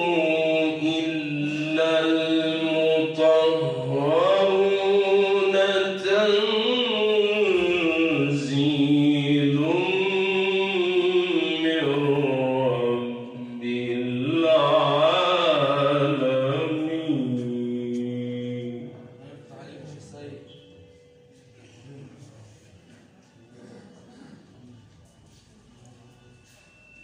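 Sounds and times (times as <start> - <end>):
man reciting over loudspeaker: 0.0 - 21.0.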